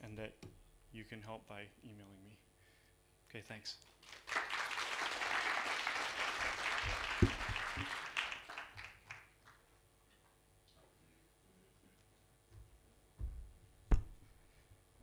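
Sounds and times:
audience applause: 0:04.0 - 0:09.6.

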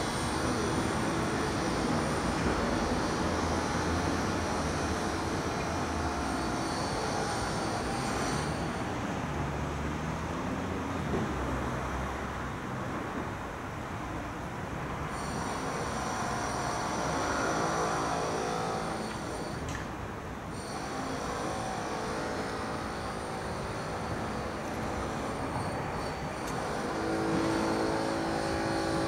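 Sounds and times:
high thin ringing tones: 0:00.0 - 0:09.2, 0:15.1 - 0:19.8, 0:20.5 - 0:29.0.

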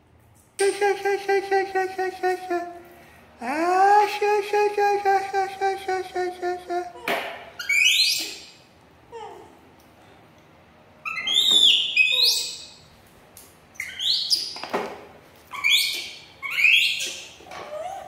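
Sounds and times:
baby monkeys squealing: 0:07.0 - 0:08.6, 0:11.0 - 0:12.8, 0:13.8 - 0:14.6, 0:15.5 - 0:18.0.

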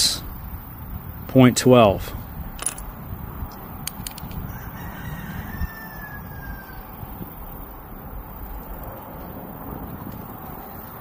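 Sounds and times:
rooster crowing faintly: 0:04.4 - 0:07.2.

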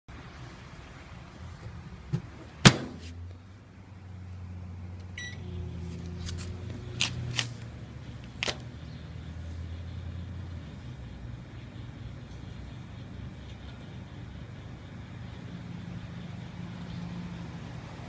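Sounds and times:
microwave door slamming: 0:02.6 - 0:03.0
microwave humming: 0:03.8 - 0:18.0
keypad beep: 0:05.2 - 0:05.4.

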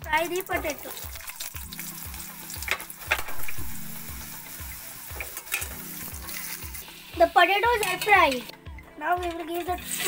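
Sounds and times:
potatoes sizzling in oil: 0:00.0 - 0:08.5.

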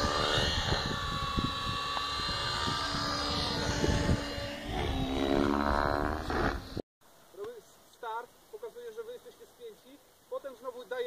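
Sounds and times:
model helicopter high whine: 0:00.0 - 0:06.8
wind buffeting microphone: 0:00.0 - 0:06.8.

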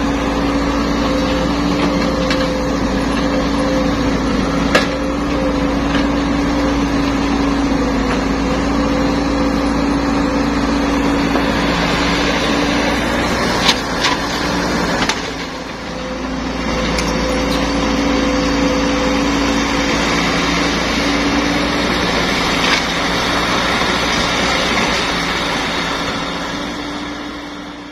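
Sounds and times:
excavator diesel engine droning: 0:00.0 - 0:27.9.

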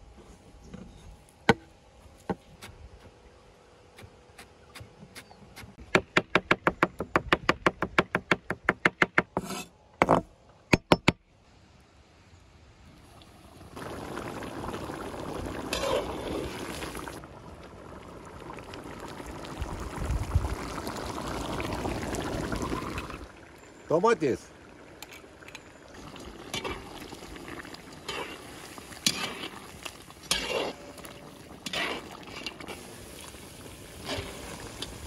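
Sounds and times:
stew simmering and bubbling: 0:12.8 - 0:35.0.

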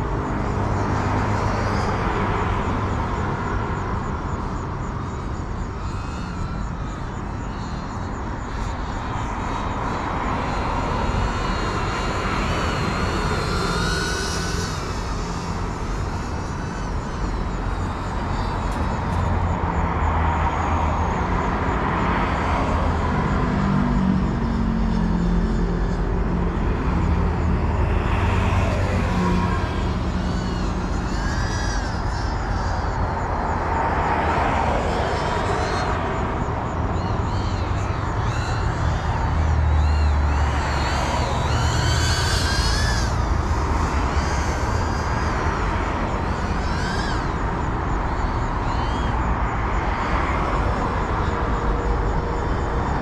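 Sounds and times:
drone motors whining: 0:00.0 - 0:53.0.

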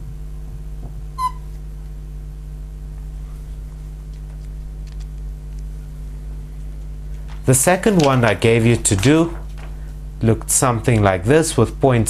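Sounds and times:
buzzy electrical mains hum: 0:00.0 - 0:12.0
brief high squeak: 0:01.2 - 0:01.5.

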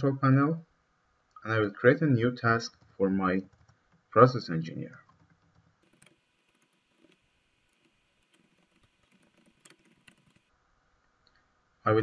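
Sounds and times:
faint keyboard typing: 0:02.6 - 0:04.1, 0:04.7 - 0:10.5.

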